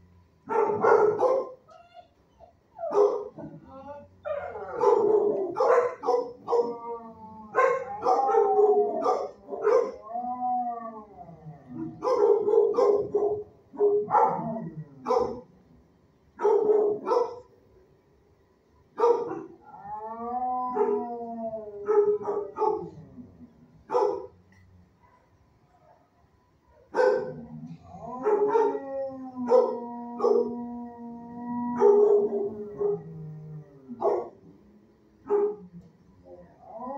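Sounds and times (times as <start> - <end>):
dogs barking: 0.5 - 1.6, 2.8 - 3.6, 4.3 - 6.8, 7.5 - 10.0, 11.8 - 15.5, 16.4 - 17.5, 19.0 - 19.6, 20.7 - 21.1, 21.8 - 23.0, 23.9 - 24.4, 26.9 - 27.4, 28.2 - 28.8, 29.4 - 30.6, 31.8 - 33.1, 34.0 - 34.4, 35.2 - 35.6
dog howling: 1.7 - 15.4, 19.6 - 23.3, 27.4 - 34.3, 35.3 - 36.9.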